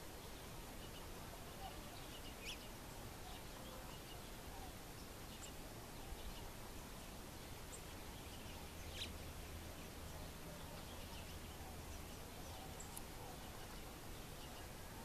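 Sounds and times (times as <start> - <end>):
background hiss: 0.0 - 15.0.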